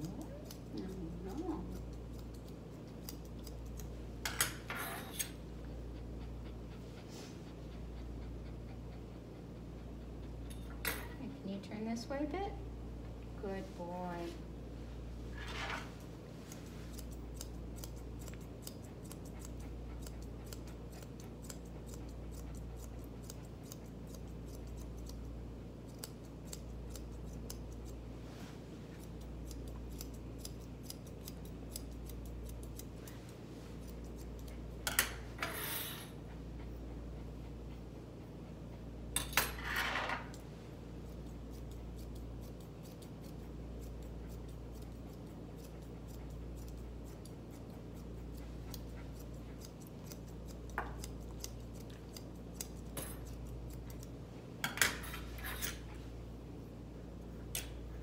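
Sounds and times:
grooming shears snipping: 0.0 - 9.3, 15.8 - 35.4, 40.2 - 56.0
steady low hum: 0.0 - 58.0.

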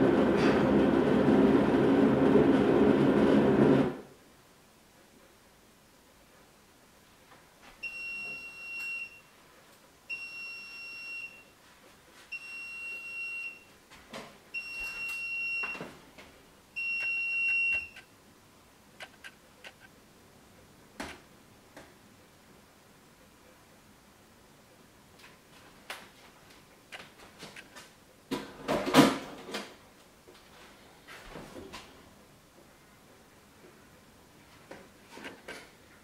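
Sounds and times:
appliance long beeps: 7.8 - 9.3, 10.1 - 11.6, 12.3 - 13.7, 14.5 - 15.9, 16.8 - 18.0.

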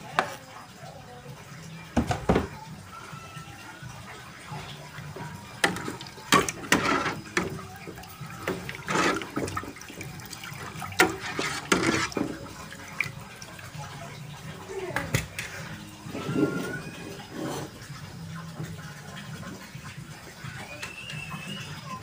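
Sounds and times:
soup sloshing in a pot: 4.6 - 14.5.

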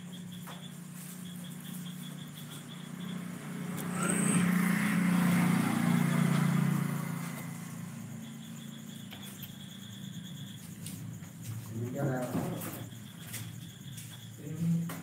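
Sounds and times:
vehicle engine running: 0.0 - 11.9.

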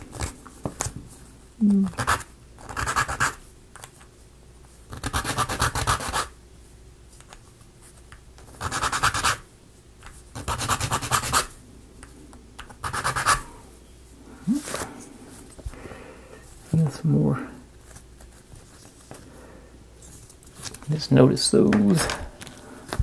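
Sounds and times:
file rasping on wood: 10.4 - 11.5, 12.8 - 13.4.

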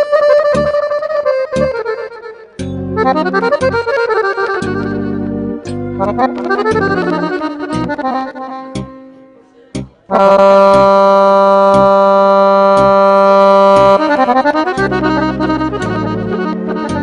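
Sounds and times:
accordion playing folk music: 0.0 - 17.0
steady beat: 0.0 - 17.0.

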